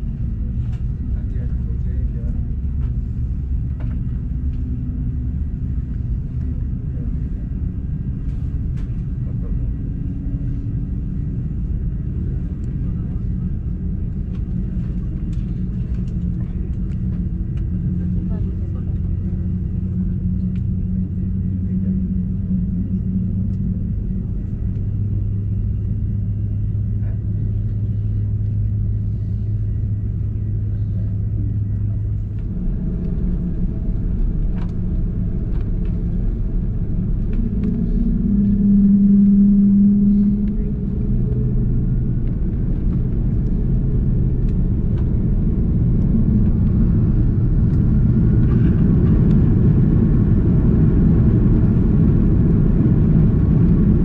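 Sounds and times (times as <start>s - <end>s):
jet engines humming: 0.0s - 54.0s.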